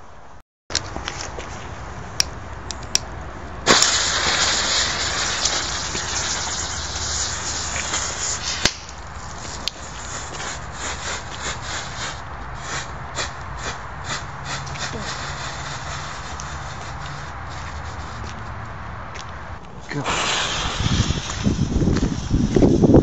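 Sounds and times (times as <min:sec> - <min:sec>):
small firework pops: 0:03.0 - 0:10.1, 0:20.0 - 0:22.8
sharp firework crack: 0:03.6 - 0:18.0, 0:19.9 - 0:23.0
hissing spray of sparks: 0:03.6 - 0:18.2, 0:19.9 - 0:23.0.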